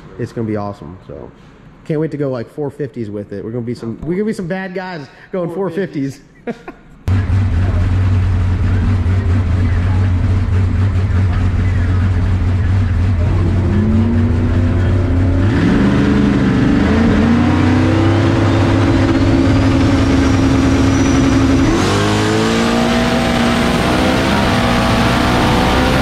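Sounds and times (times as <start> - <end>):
drag car engine revving: 7.1 - 26.0
high turbo whistle: 16.8 - 25.0.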